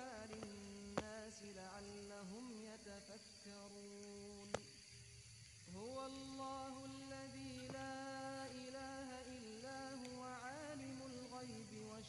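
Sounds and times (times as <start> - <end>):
person chanting melodically: 5.7 - 12.0.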